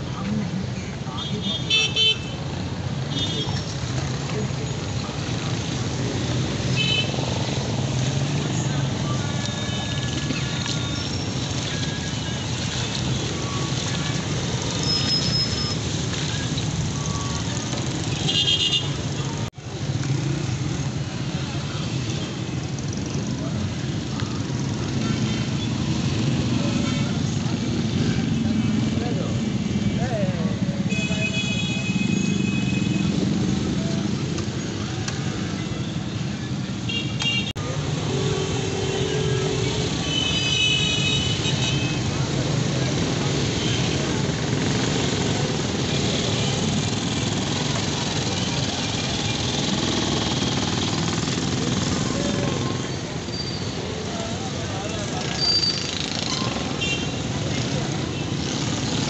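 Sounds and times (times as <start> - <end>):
street traffic: 0.0 - 59.0
vehicle engines running: 2.4 - 30.9, 41.5 - 59.0.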